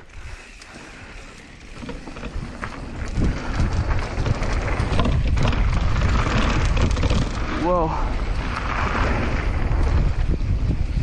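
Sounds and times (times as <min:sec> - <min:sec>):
bike tyres rolling on dirt: 0:00.0 - 0:11.0
wind rushing over microphone: 0:00.0 - 0:11.0.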